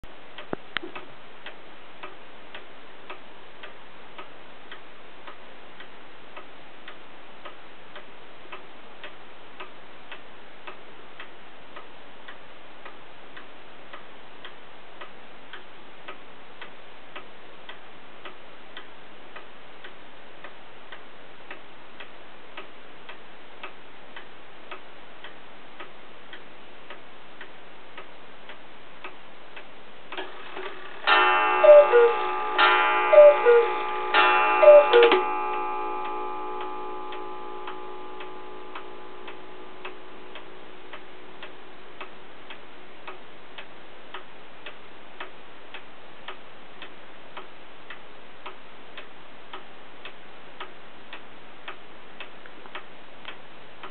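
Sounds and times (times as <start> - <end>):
clock ticking: 0.0 - 53.9
ringing gong stroke: 31.1 - 40.7
two-note cuckoo calls: 31.5 - 32.4, 33.0 - 35.3.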